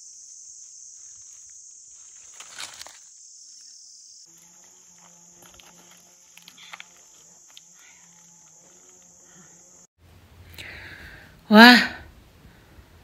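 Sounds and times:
forest insects chorus: 0:00.0 - 0:09.9.

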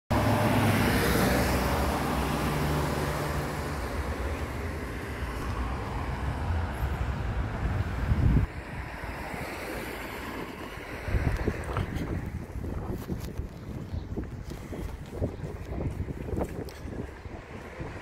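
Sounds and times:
car engine passing: 0:00.1 - 0:12.5
road noise: 0:00.1 - 0:18.0.

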